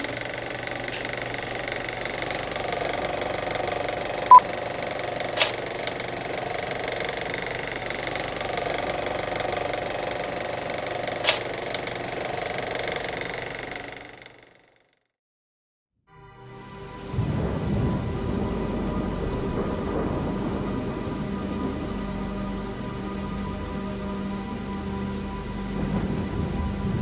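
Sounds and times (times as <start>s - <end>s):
film projector clatter and whir: 0.0s - 15.1s.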